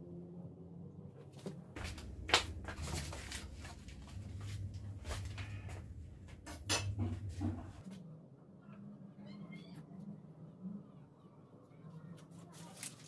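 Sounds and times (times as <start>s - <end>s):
low rumble: 0.0s - 9.0s.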